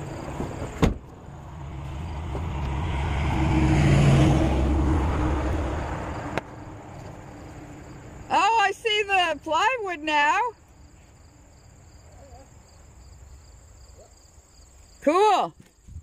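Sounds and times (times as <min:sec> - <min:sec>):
vehicle driving past: 0:00.0 - 0:08.3.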